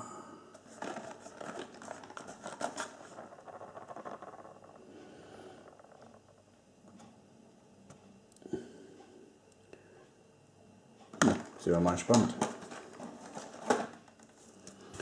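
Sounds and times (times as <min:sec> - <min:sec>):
cardboard rubbing: 0:00.6 - 0:04.6.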